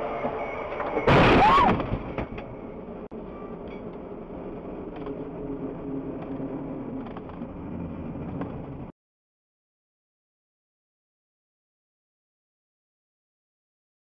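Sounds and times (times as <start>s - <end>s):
car engine and road noise: 0.0s - 8.9s
sudden loud burst: 1.1s - 2.2s.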